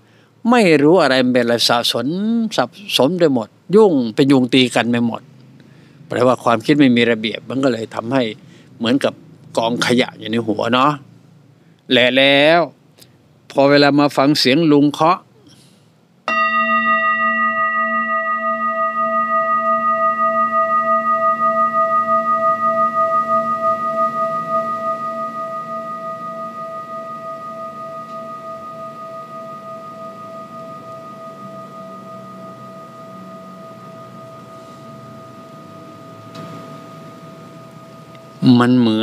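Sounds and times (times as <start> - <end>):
singing bowl ringing: 16.3 - 39.0.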